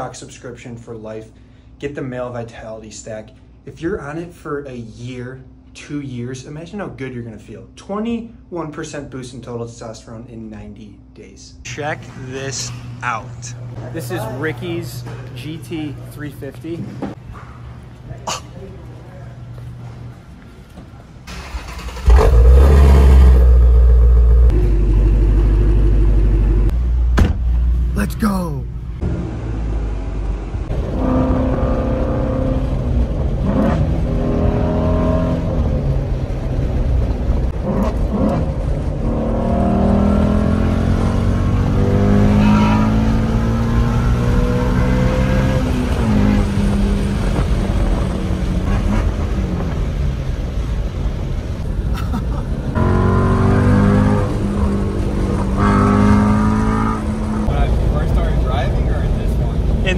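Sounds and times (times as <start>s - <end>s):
car engine accelerating hard: 21.3s - 26.8s, 29.0s - 51.0s, 52.7s - 59.9s.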